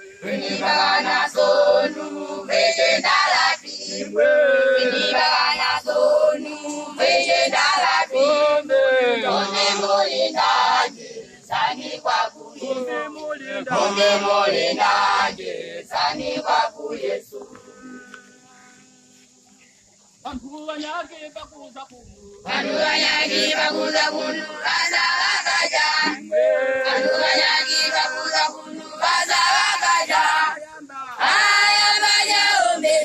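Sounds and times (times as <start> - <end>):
choir singing in unison: 0.0 - 18.2, 22.4 - 33.0.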